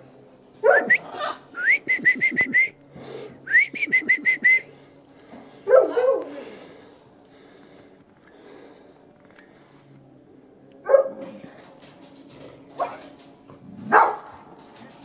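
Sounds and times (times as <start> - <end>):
person whistling: 0.9 - 2.8, 3.5 - 4.7.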